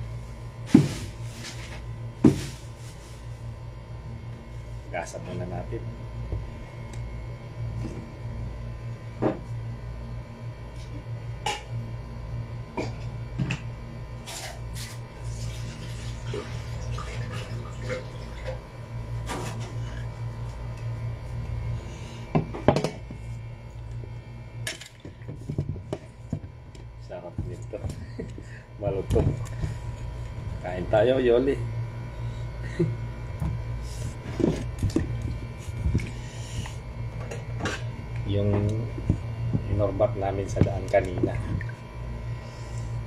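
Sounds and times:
water splashing and sloshing: 15.3 - 18.6.

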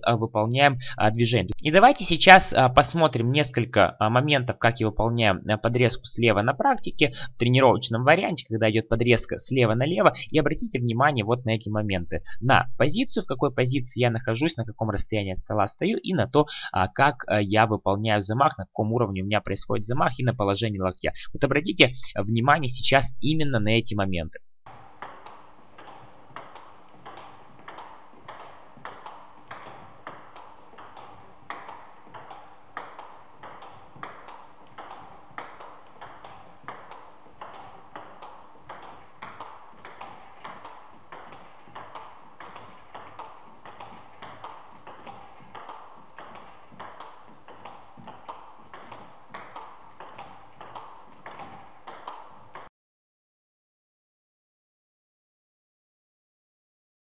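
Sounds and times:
table tennis ball clicking: 24.7 - 52.7.

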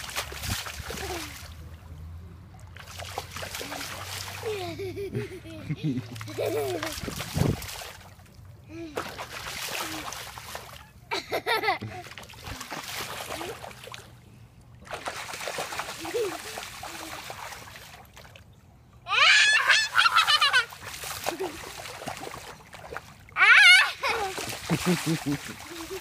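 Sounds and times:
bare feet splashing in puddle: 0.0 - 2.0, 2.6 - 18.5, 19.3 - 26.0
child squealing: 19.1 - 20.6, 23.4 - 24.3.

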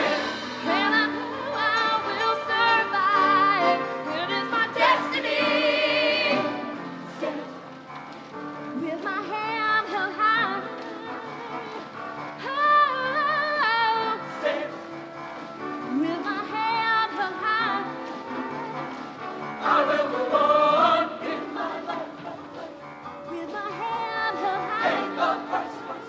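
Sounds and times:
choir singing: 0.0 - 7.7, 14.1 - 15.1, 18.4 - 22.9, 23.7 - 26.0
instrumental accompaniment: 0.0 - 26.0
woman singing into a microphone: 0.7 - 5.6, 8.8 - 14.3, 15.9 - 18.3, 23.3 - 26.0.

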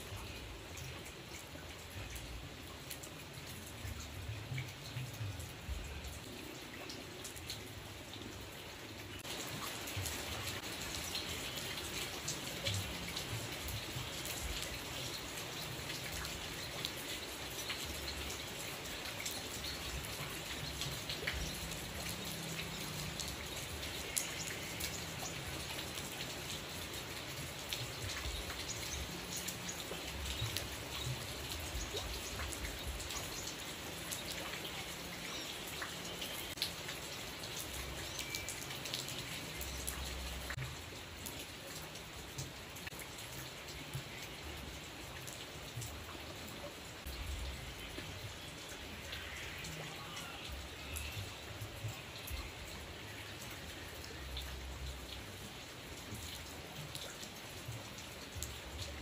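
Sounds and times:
rain falling through tree: 0.0 - 59.0.

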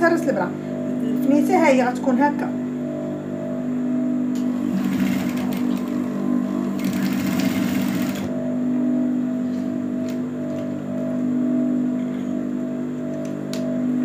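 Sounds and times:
steady low hum: 0.0 - 14.0
sewing machine stitching: 4.7 - 6.0, 6.8 - 8.3.

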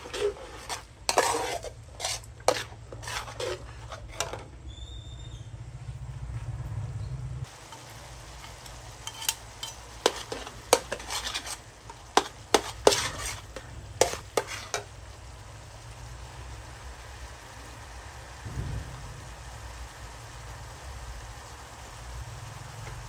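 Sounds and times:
metal turner scraping a wok: 0.0 - 4.8, 7.7 - 15.0
frying sizzle: 0.0 - 5.0, 7.4 - 23.0.

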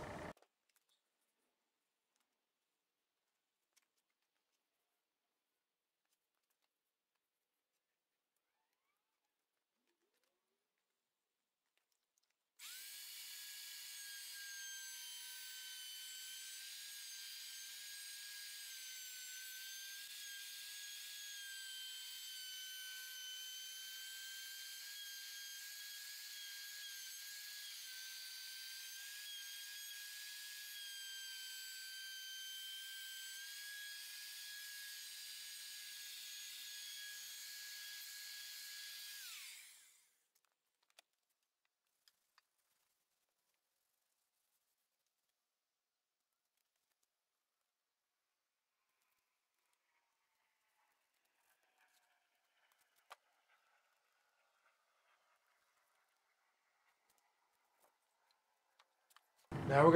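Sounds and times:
electric router whining: 0.0 - 0.3, 12.6 - 40.0, 59.5 - 59.9.

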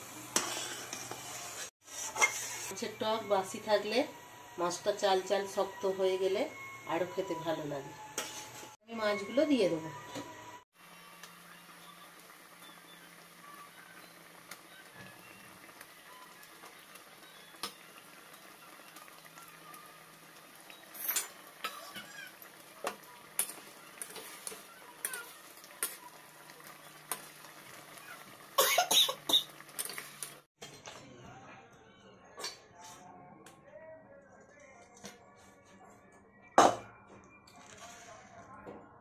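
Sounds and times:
sauce bubbling and sizzling: 0.0 - 2.9, 10.4 - 30.5.

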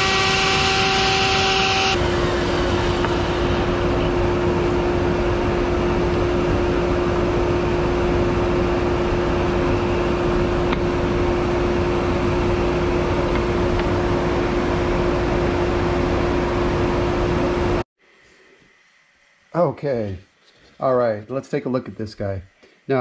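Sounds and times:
router whining: 0.0 - 5.3
rush of air: 2.0 - 5.5.

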